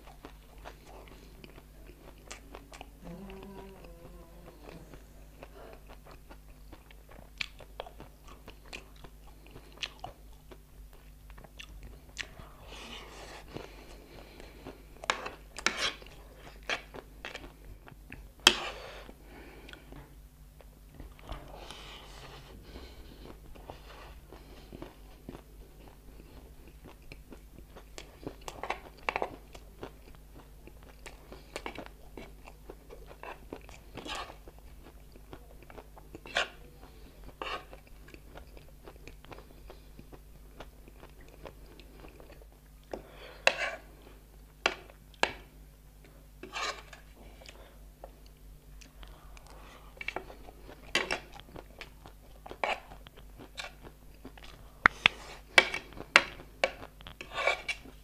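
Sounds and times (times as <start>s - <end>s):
crunchy chewing: 22.6s - 58.0s.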